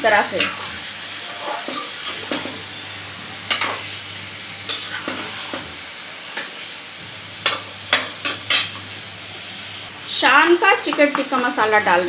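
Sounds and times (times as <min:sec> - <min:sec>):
chicken sizzling in oil: 0:00.0 - 0:12.0
metal spoon scraping a pan: 0:00.3 - 0:02.6, 0:03.4 - 0:04.0, 0:04.6 - 0:06.5, 0:07.4 - 0:09.0.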